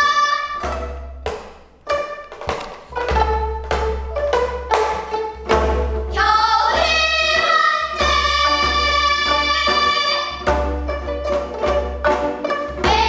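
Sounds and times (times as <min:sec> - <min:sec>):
girls singing together: 0:00.0 - 0:00.7, 0:06.1 - 0:10.5, 0:12.6 - 0:13.0
plucked zither ensemble: 0:00.0 - 0:13.0.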